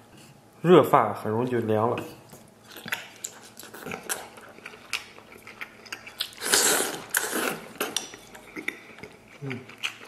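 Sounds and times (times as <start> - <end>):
wet chewing with mouth clicks: 2.0 - 10.0
loud slurp: 6.3 - 7.7.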